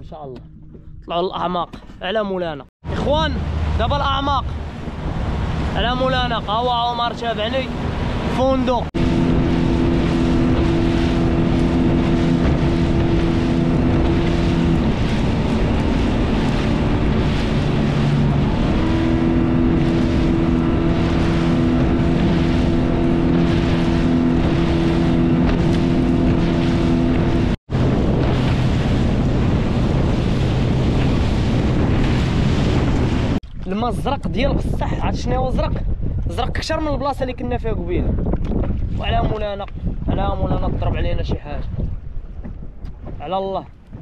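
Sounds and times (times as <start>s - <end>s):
boat motor running: 0.0s - 2.2s, 2.8s - 33.5s
water rushing: 2.8s - 33.4s
wind on microphone: 2.8s - 44.0s.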